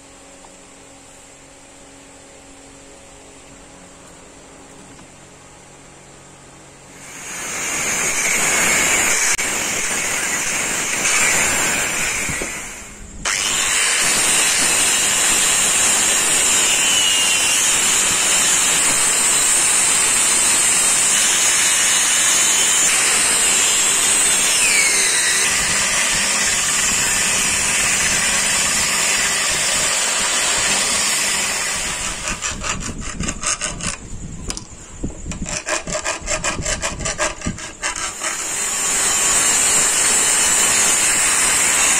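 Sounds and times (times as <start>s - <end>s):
angle grinder on wood: 6.9s - 34.0s, 35.3s - 41.9s
hand file rasping wood: 28.0s - 34.0s, 35.3s - 41.0s.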